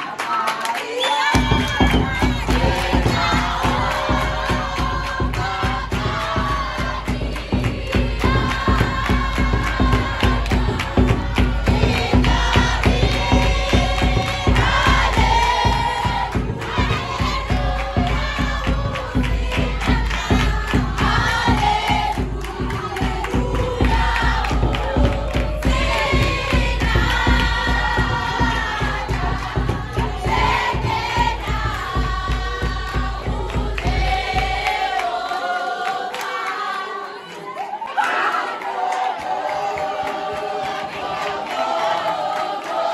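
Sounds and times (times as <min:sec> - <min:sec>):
children singing in unison: 0:00.0 - 0:42.9
bass drum beating: 0:01.4 - 0:35.0.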